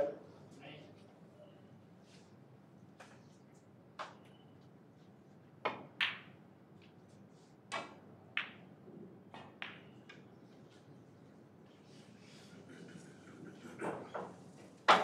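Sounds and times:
low room noise: 0.0 - 15.0.

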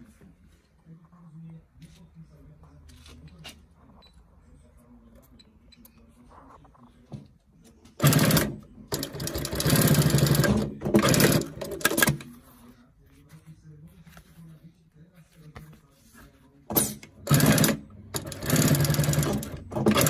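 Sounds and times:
sewing machine stitching: 8.0 - 12.3, 16.7 - 20.0.

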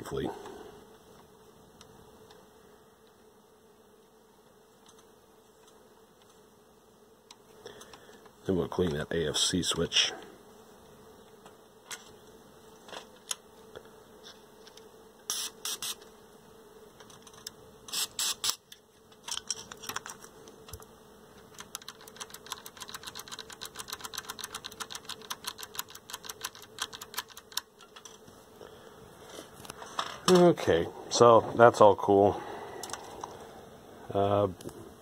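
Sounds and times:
faint steady hum: 0.0 - 35.0
spray can spritzes: 15.3 - 16.0, 17.9 - 18.6.

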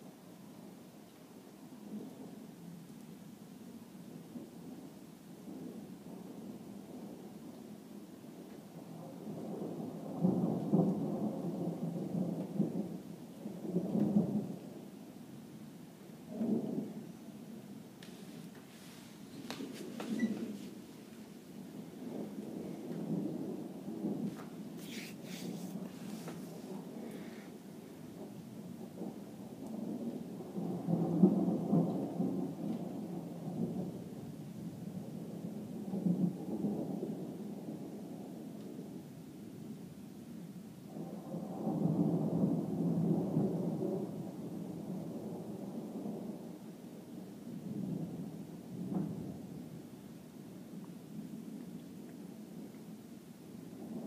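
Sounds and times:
thunder rumbling: 19.2 - 38.9.

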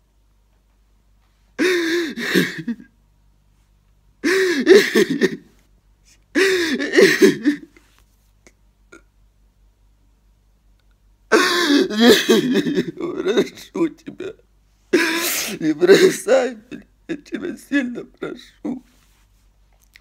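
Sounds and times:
man sobbing and wailing: 4.2 - 5.4, 6.4 - 7.8, 11.3 - 14.4, 15.0 - 18.9.

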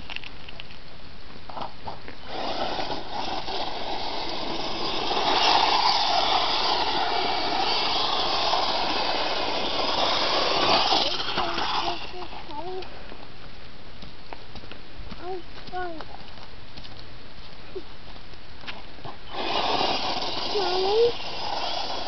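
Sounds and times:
electric motor and gears whining: 2.2 - 12.8, 19.3 - 22.0
tyres hissing on dirt: 2.2 - 13.2, 19.2 - 22.0.

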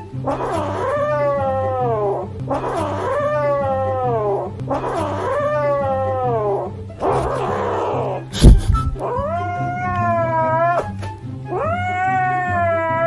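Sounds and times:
kitten meowing: 0.4 - 4.4, 8.9 - 13.0.

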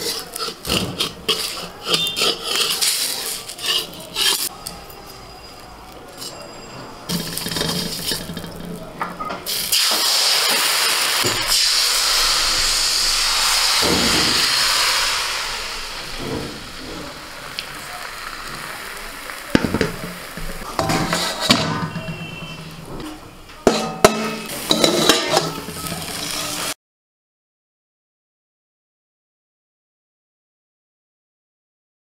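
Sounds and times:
utensils knocking on a pan: 0.0 - 4.5, 19.6 - 26.3
batter sizzling in a pan: 0.0 - 5.0, 9.4 - 22.9, 24.0 - 26.8.

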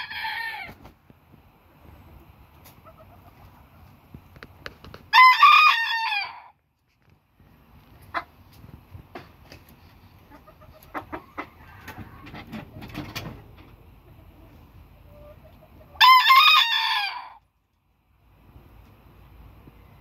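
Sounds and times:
rooster crowing: 0.0 - 0.7, 5.1 - 6.5, 16.0 - 17.4
soft clucks: 10.1 - 13.0.

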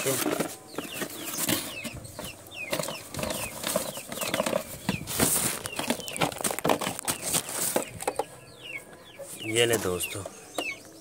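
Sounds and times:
box rustling and clicking: 0.0 - 8.3
birds chirping: 0.0 - 11.0.

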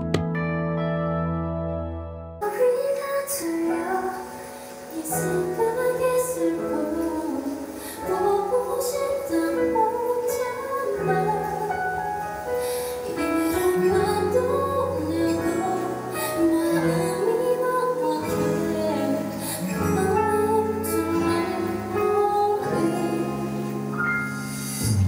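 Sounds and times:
backing music: 0.0 - 2.5
woman singing a ballad: 2.4 - 25.0.

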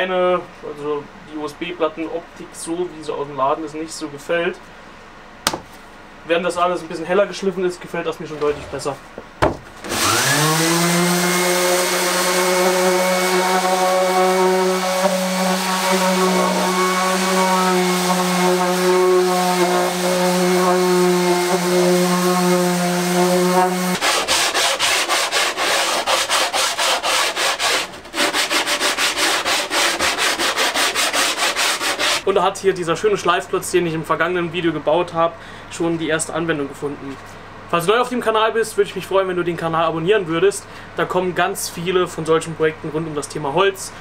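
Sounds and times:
orbital sander running on wood: 9.9 - 27.8
hand sanding with sanding block: 9.9 - 32.3.

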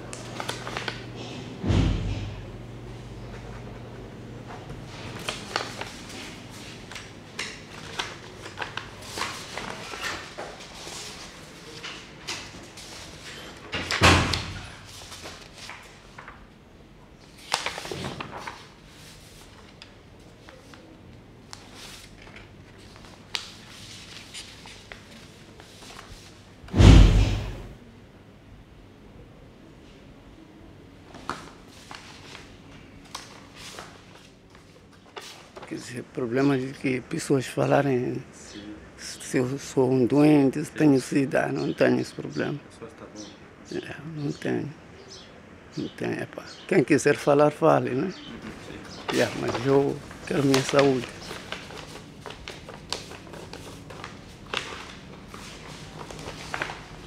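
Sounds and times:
heavy thump: 1.6 - 2.4, 26.7 - 27.8.

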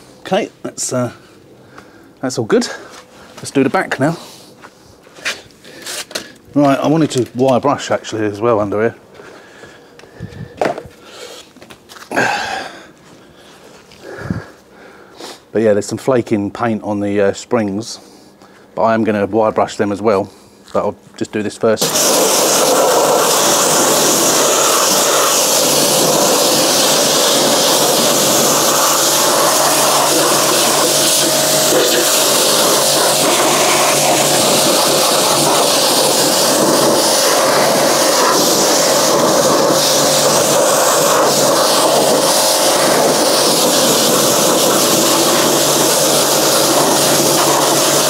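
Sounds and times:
pressure washer jet spraying: 21.8 - 48.0.

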